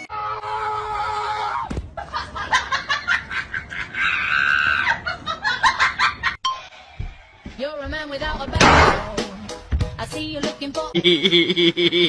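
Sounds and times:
people laughing: 2.0s - 6.4s.

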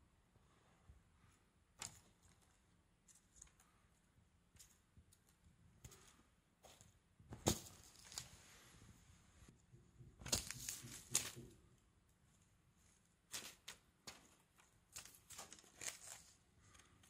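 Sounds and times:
cat toy clicks and rustles: 10.2s - 11.7s, 13.2s - 17.0s.

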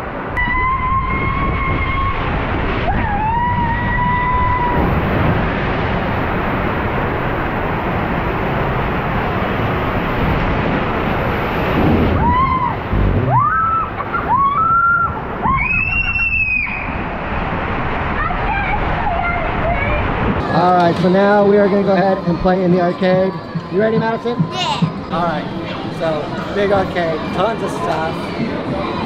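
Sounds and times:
water rushing in a slide tube: 0.0s - 22.9s
dull thump: 12.9s - 13.5s.

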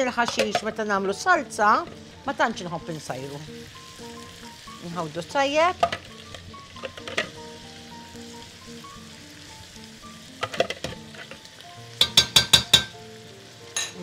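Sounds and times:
background music: 0.0s - 14.0s
food sizzling in a pot: 0.0s - 14.0s
spoon tapping on metal pot: 0.2s - 0.7s, 12.0s - 13.0s.

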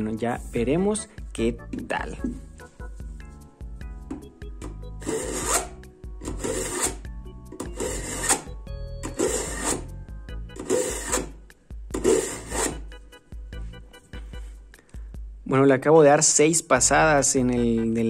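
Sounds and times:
knife grinding in sharpener: 4.9s - 9.9s, 10.6s - 11.4s, 12.0s - 12.8s.

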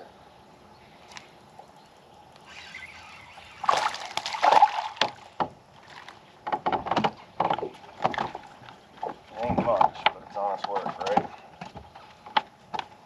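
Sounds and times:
fish splashing in water: 2.4s - 6.3s
sharp knocks against a boat: 6.4s - 12.9s.

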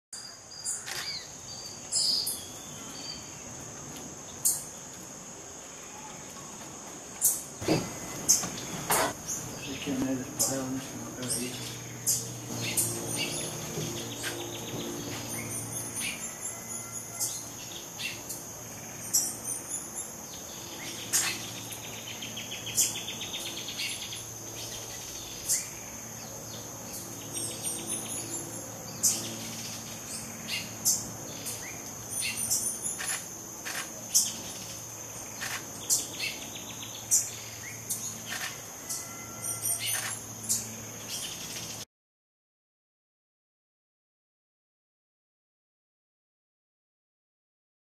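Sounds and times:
steady high insect drone: 0.2s - 41.9s
pulsed insect trill: 7.2s - 41.8s.

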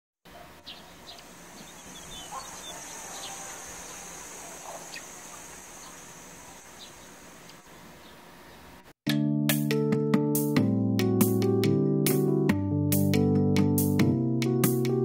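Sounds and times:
birds chirping: 0.3s - 8.8s
insect drone: 1.0s - 8.0s.

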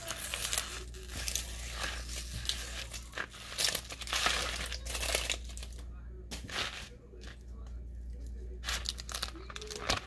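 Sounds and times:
vinyl sticker peeling and crinkling: 0.0s - 5.8s, 8.6s - 10.0s.

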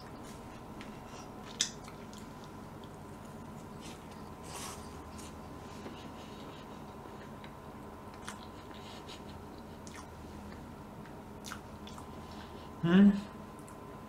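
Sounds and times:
person chewing soft food: 0.0s - 12.7s
wet mouth clicks: 9.8s - 12.1s.

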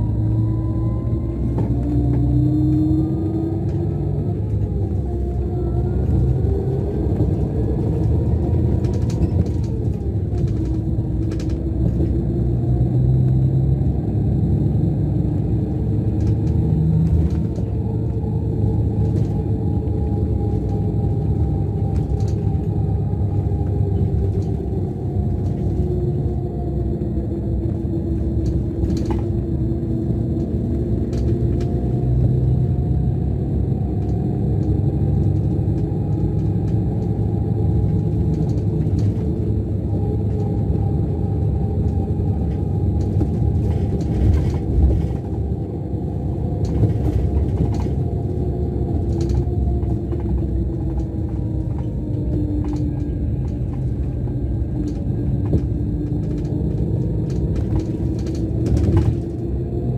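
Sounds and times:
bus diesel engine drone: 0.0s - 59.9s.

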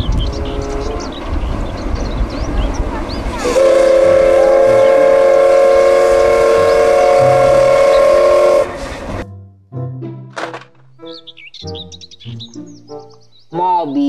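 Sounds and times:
train running noise: 0.0s - 9.2s
steam locomotive whistle blast: 3.4s - 9.2s.

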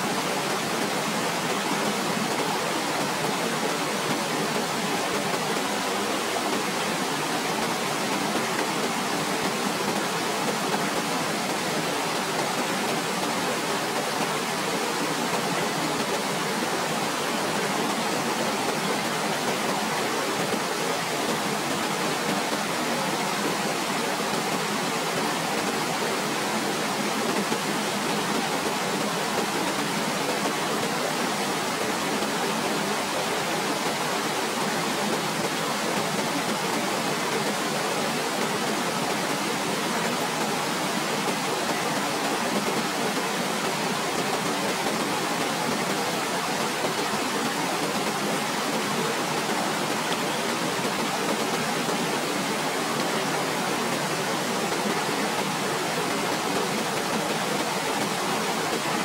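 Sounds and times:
waterfall rushing: 0.0s - 59.0s.

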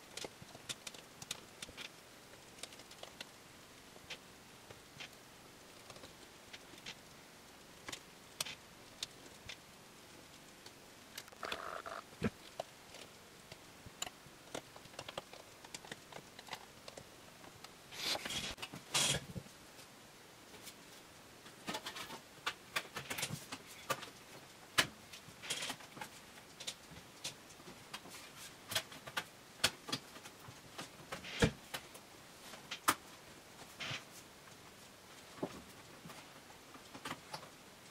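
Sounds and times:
rubbing and handling noise: 0.0s - 37.6s.

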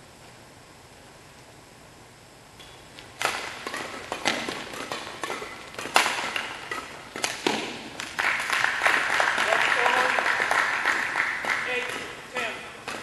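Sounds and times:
footwork on court: 2.6s - 13.0s
rackets hitting shuttlecock: 2.6s - 13.0s
applause: 8.0s - 11.9s.

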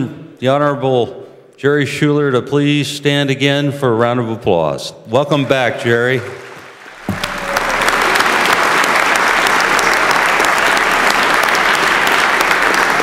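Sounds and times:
crowd applauding: 5.3s - 13.0s.

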